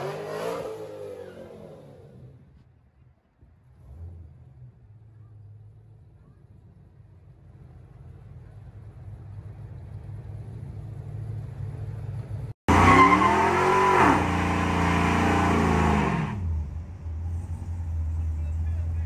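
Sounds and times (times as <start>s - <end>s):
car engine revving: 0.0s - 2.5s, 12.7s - 19.0s.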